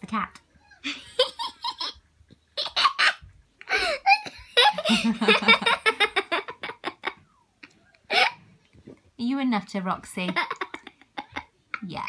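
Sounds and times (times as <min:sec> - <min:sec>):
woman laughing: 0:02.6 - 0:07.2, 0:10.2 - 0:11.5.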